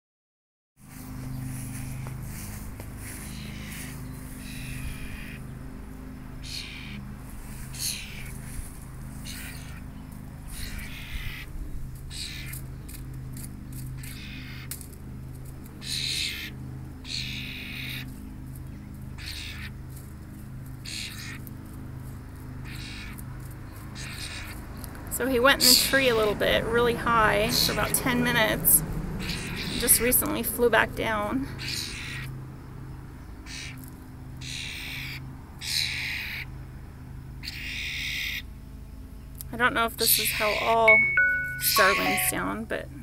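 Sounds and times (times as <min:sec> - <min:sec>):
steady low hum: 0:00.8 - 0:37.8
starling squawking: 0:03.1 - 0:05.5, 0:06.4 - 0:07.1, 0:07.7 - 0:08.5, 0:09.2 - 0:09.9, 0:10.5 - 0:11.5, 0:12.1 - 0:12.6, 0:14.0 - 0:14.7, 0:15.8 - 0:18.1, 0:19.2 - 0:19.8, 0:20.8 - 0:21.4, 0:22.6 - 0:23.2, 0:23.9 - 0:24.6, 0:29.2 - 0:30.3, 0:31.5 - 0:32.4, 0:33.4 - 0:33.8, 0:34.4 - 0:36.5, 0:37.4 - 0:38.5.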